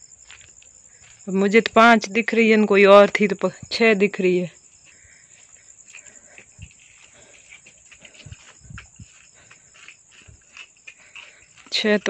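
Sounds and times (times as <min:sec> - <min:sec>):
crickets chirring: 0:00.0 - 0:12.0
goat hooves clopping on hard ground: 0:05.9 - 0:11.8.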